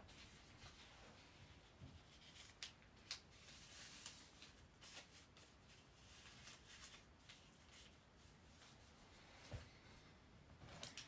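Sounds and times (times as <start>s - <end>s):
paper rustling and crinkling: 0.1s - 8.8s.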